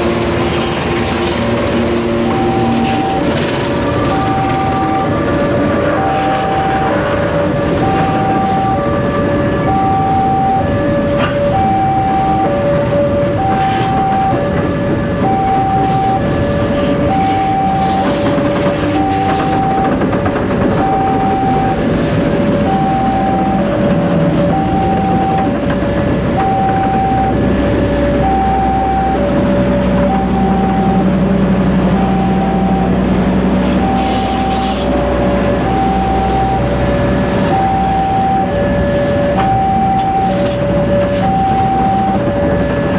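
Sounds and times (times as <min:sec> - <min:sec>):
level crossing two-tone alarm: 0:00.0 - 0:42.9
train wheels on rails: 0:00.0 - 0:42.9.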